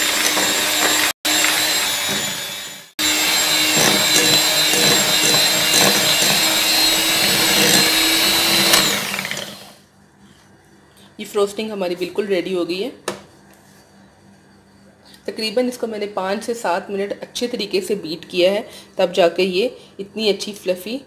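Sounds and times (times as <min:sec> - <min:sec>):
electric hand mixer whining: 0:00.0 - 0:09.8.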